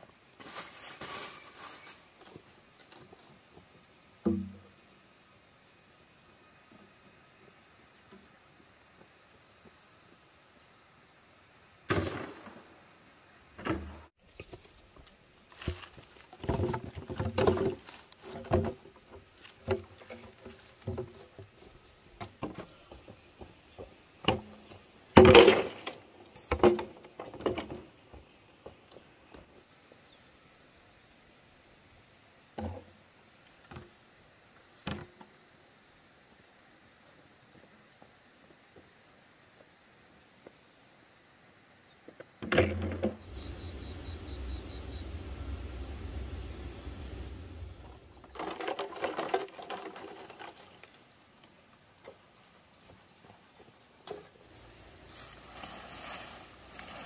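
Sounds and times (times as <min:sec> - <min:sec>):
insects chirping: 0:00.0 - 0:57.0
bamboo poles knocking and clattering: 0:02.2 - 0:04.7, 0:13.6 - 0:28.8, 0:42.4 - 0:43.6, 0:48.2 - 0:51.0.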